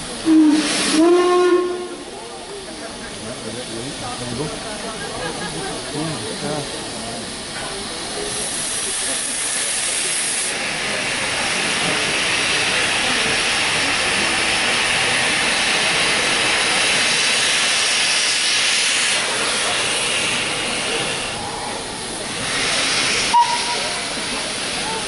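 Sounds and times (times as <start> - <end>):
steam locomotive hissing: 0.0 - 25.0.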